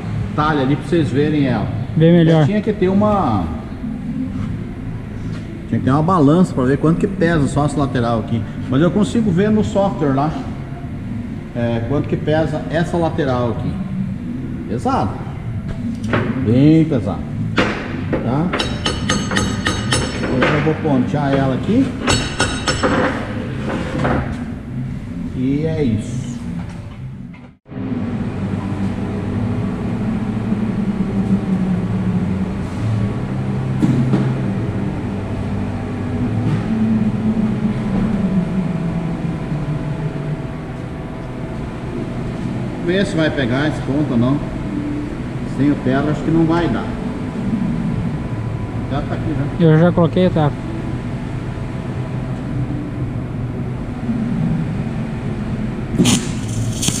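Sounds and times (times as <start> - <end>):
machinery humming: 0.0 - 57.0
welding arc striking: 56.0 - 57.0.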